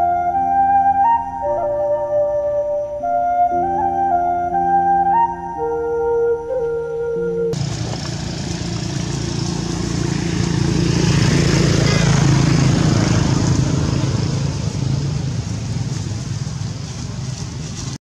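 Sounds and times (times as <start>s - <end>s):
flute tune: 0.0s - 7.6s
motor engine running: 7.6s - 18.0s.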